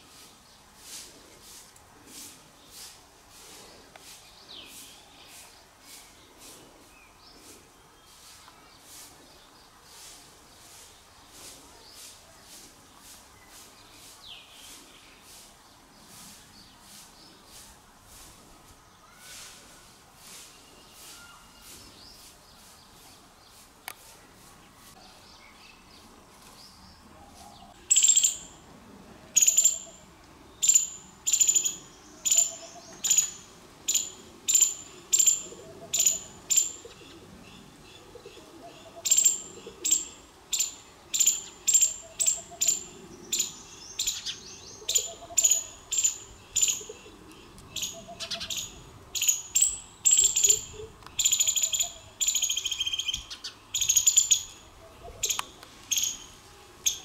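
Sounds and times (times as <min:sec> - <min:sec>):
loud sharp chirping calls: 0:27.7 - 0:28.6, 0:29.4 - 0:30.0, 0:30.6 - 0:37.2, 0:38.0 - 0:57.0.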